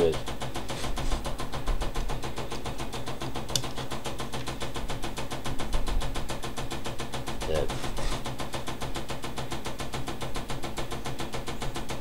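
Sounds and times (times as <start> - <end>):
electric motor pulsing: 0.0 - 9.0.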